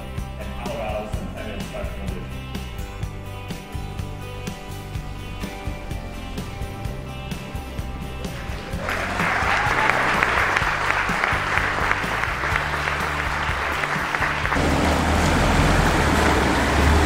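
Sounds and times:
background music: 0:00.0 - 0:17.0
audience applauding: 0:08.2 - 0:17.0.

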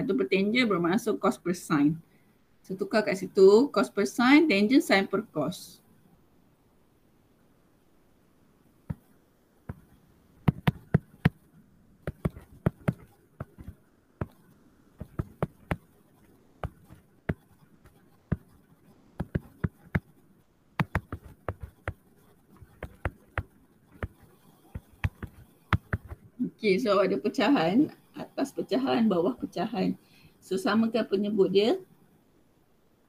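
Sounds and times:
stylus tapping on tablet screen: 0:08.9 - 0:09.1, 0:09.7 - 0:16.0, 0:16.6 - 0:18.6, 0:19.2 - 0:20.2, 0:20.8 - 0:26.2.

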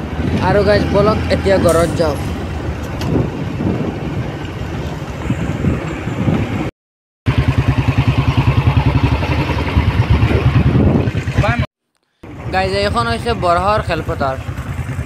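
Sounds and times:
vehicle engine running: 0:07.3 - 0:15.0.

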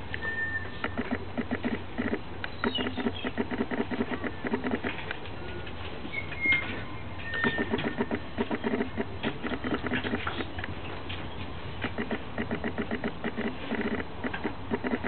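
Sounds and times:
dog high squeal: 0:06.1 - 0:08.1
dogs growling: 0:07.5 - 0:10.5, 0:11.8 - 0:15.0.

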